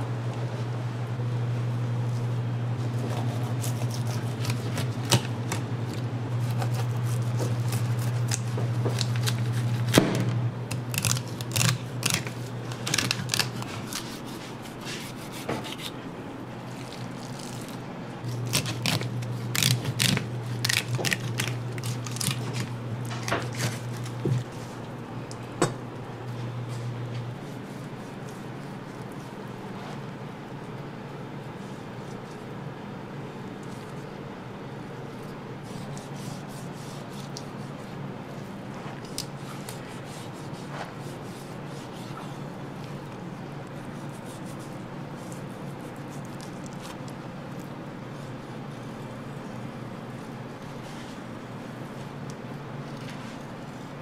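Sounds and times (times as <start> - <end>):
steady low hum: 0.0 - 54.0
knife scraping fish on cutting board: 11.0 - 16.0.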